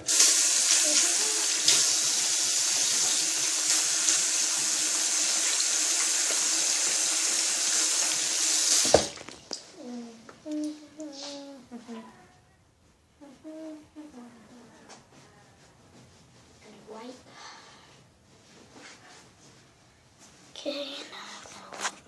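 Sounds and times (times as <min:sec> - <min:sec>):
water running from a sink tap: 0:00.0 - 0:09.3.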